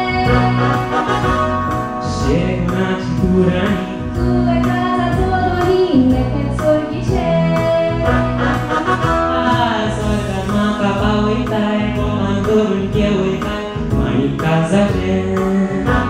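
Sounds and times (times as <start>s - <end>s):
woman singing into microphone: 0.0s - 2.4s, 3.4s - 12.0s
backing music with steady beat: 0.0s - 16.0s.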